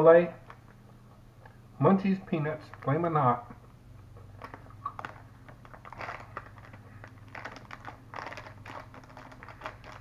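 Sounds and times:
plastic snack bag crinkling: 0:02.6 - 0:03.2, 0:04.1 - 0:10.0.

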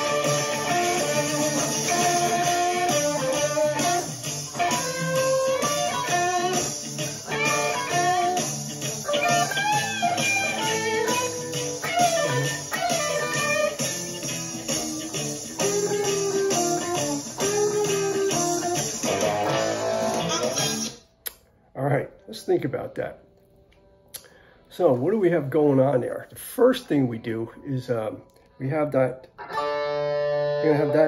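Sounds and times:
band backing track with bass: 0:00.0 - 0:20.9
electric guitar bluesy lead: 0:00.0 - 0:21.0, 0:29.3 - 0:31.0.

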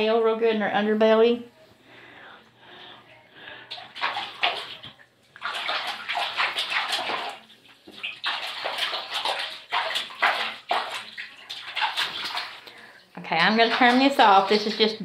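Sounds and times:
running water splashing on dog: 0:03.7 - 0:12.8, 0:13.4 - 0:15.0.

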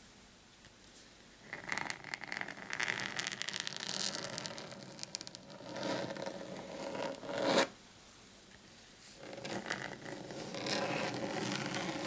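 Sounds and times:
fingernails scratching a mat: 0:05.5 - 0:07.7, 0:09.2 - 0:12.0.

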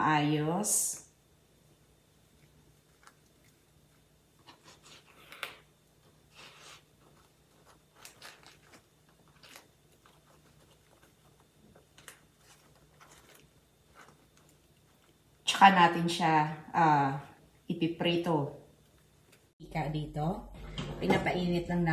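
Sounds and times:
banana leaves crinkling: 0:06.4 - 0:15.4.

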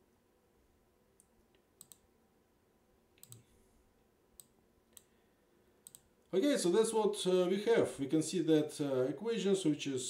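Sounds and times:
computer mouse clicks: 0:01.2 - 0:02.1, 0:03.2 - 0:03.5, 0:04.4 - 0:05.1, 0:05.8 - 0:06.1.

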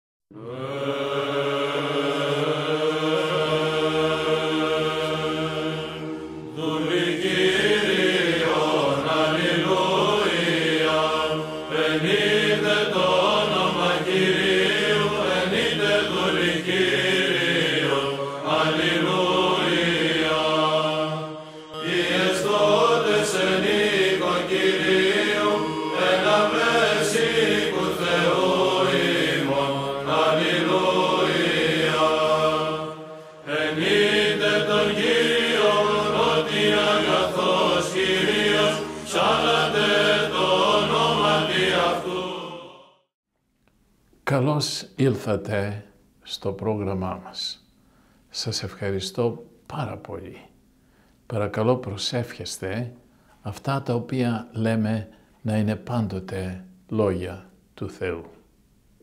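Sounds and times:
church chant: 0:00.3 - 0:43.1.

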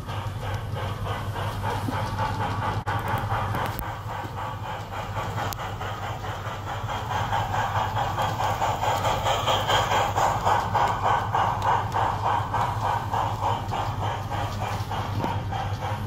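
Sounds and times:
model train clattering: 0:00.0 - 0:16.0
model train hum: 0:00.0 - 0:16.0.

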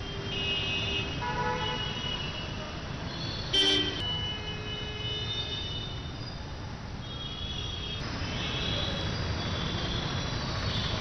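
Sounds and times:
traffic noise: 0:00.0 - 0:11.0
vehicle horns honking: 0:03.3 - 0:06.0.

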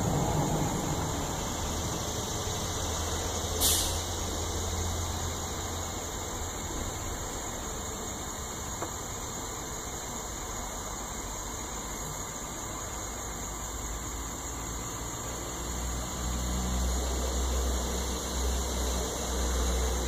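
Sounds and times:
low hum: 0:00.0 - 0:04.4
brief hiss: 0:03.5 - 0:04.3.

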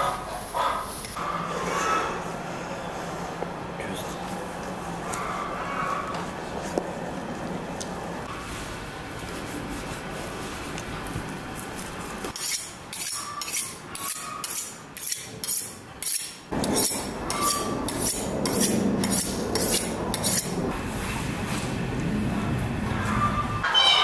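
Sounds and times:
metal kitchen utensil strokes: 0:12.3 - 0:20.6
steady low rumble: 0:16.5 - 0:23.1.

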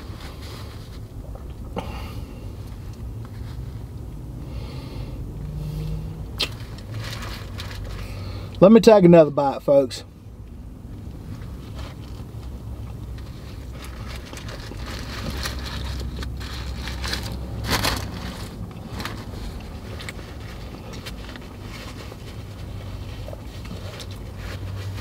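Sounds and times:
vehicle cabin hum: 0:00.0 - 0:25.0
paper wrapper crinkling: 0:06.4 - 0:08.0, 0:13.2 - 0:22.6.

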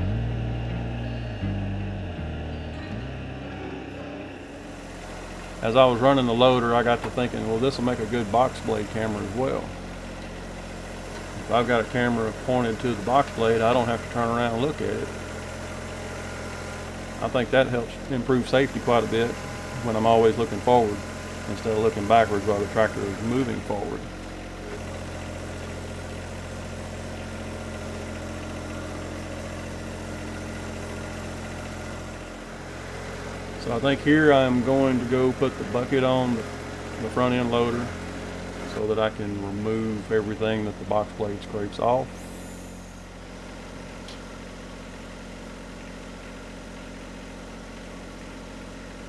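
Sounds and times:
tractor diesel engine running: 0:00.0 - 0:49.0.

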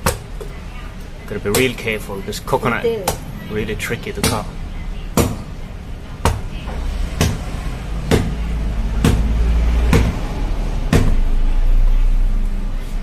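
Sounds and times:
knife chopping coconut: 0:01.4 - 0:02.0, 0:04.2 - 0:05.5, 0:06.2 - 0:11.4.

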